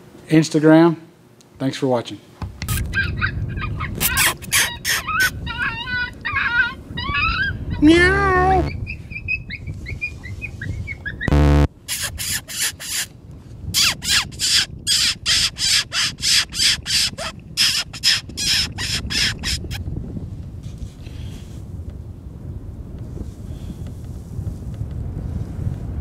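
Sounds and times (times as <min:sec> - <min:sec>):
raspy crow-like squawks: 0:02.9 - 0:07.9, 0:11.4 - 0:13.1, 0:13.8 - 0:19.8.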